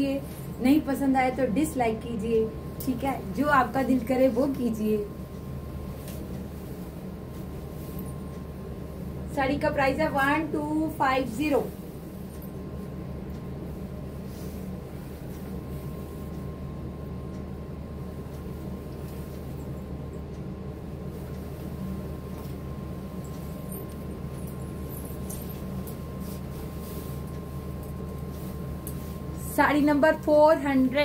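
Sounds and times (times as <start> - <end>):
low room hum: 0.0 - 31.0
faint rustles: 21.1 - 29.6.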